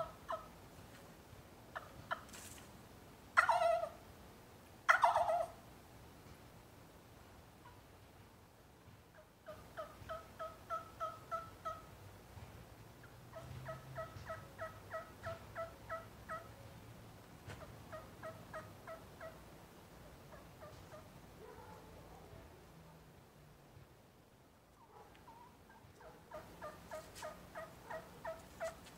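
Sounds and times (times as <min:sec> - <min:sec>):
turkey call yelps: 0:00.0 - 0:00.5, 0:03.4 - 0:04.0, 0:04.9 - 0:05.6, 0:09.2 - 0:11.9, 0:13.0 - 0:16.6, 0:17.6 - 0:19.4, 0:20.0 - 0:21.1, 0:24.8 - 0:28.9.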